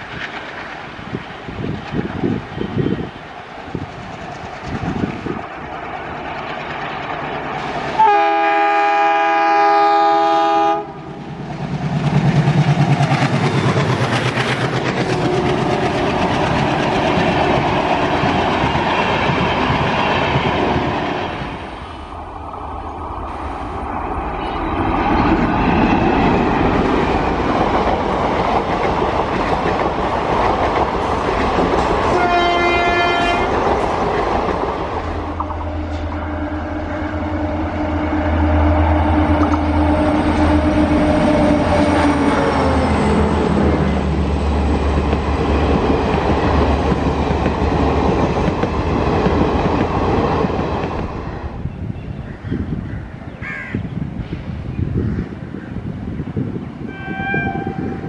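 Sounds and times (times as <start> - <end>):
locomotive engine hum: 0.0 - 51.5
locomotive multi-tone horn: 7.8 - 11.2, 15.1 - 16.0, 32.1 - 33.6, 35.1 - 42.6, 56.9 - 58.0
train coaches clattering over rails: 11.2 - 21.6, 24.1 - 36.2, 39.3 - 51.2.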